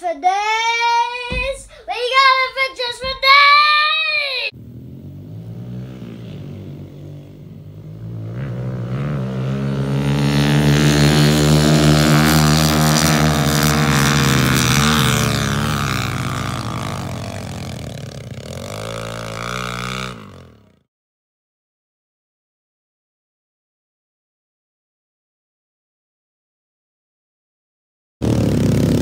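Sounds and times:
pit bike engines revving: 0:00.8 - 0:20.8, 0:28.2 - 0:29.0.

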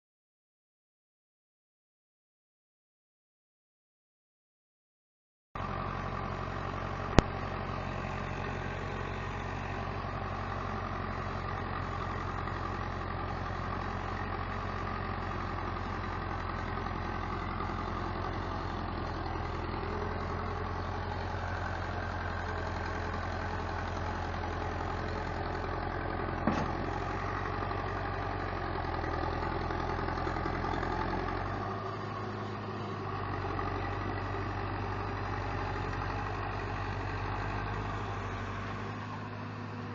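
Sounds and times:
tractor diesel engine running: 0:05.6 - 0:39.9
short knock: 0:26.4 - 0:26.9.

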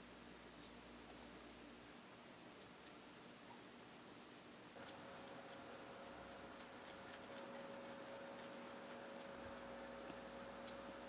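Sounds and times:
drill bit ticking and scratching: 0:04.8 - 0:11.0.

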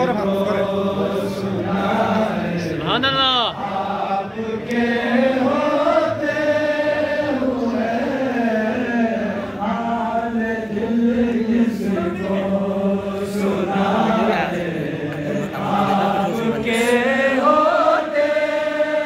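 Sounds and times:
man chanting through microphone: 0:00.0 - 0:04.5.

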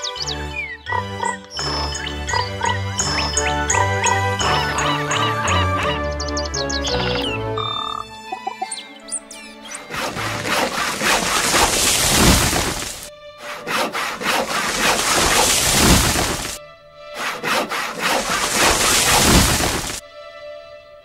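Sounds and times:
music: 0:00.0 - 0:10.8, 0:13.1 - 0:15.9, 0:16.6 - 0:18.0, 0:20.0 - 0:21.0
hand saw rasping through wood: 0:09.8 - 0:20.0.

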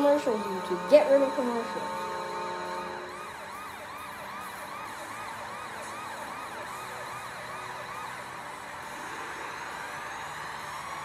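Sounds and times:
held horn tone: 0:00.0 - 0:04.7
siren rising and falling: 0:00.0 - 0:11.0.

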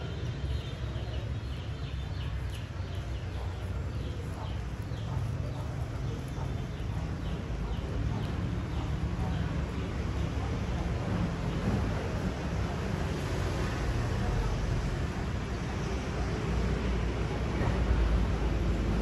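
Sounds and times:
birds chirping: 0:00.0 - 0:13.8.

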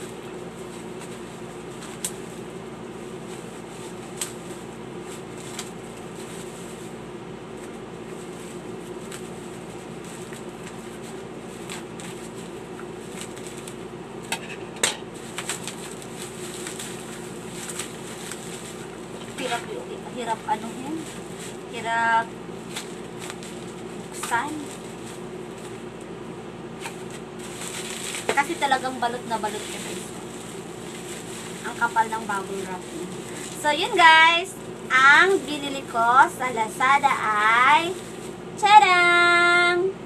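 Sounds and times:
steady low hum: 0:00.0 - 0:40.0
scissors snipping bubble wrap: 0:04.1 - 0:04.4, 0:15.3 - 0:18.5.

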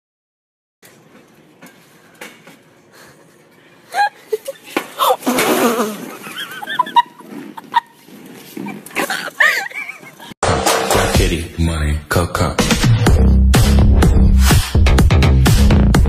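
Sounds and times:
store background noise: 0:00.8 - 0:10.4
woman laughing: 0:03.9 - 0:08.0, 0:08.6 - 0:10.4.

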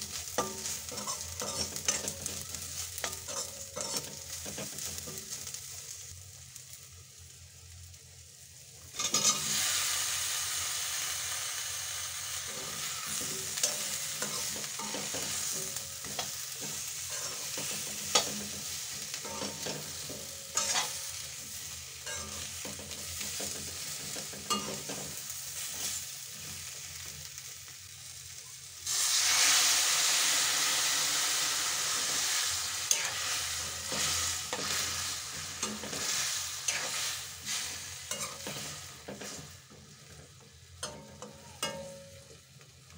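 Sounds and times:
metal spatula scraping a pan: 0:00.0 - 0:05.6, 0:09.0 - 0:09.7, 0:12.5 - 0:26.7, 0:32.1 - 0:42.3
food sizzling in a metal pan: 0:00.0 - 0:42.9.

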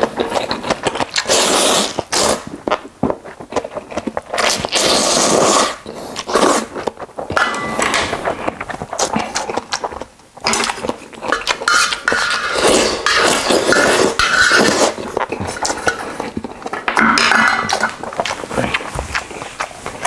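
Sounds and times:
slurping noodles: 0:00.0 - 0:02.8, 0:03.7 - 0:06.9, 0:08.2 - 0:16.7
metal spoon scraping metal lid: 0:11.3 - 0:15.0.

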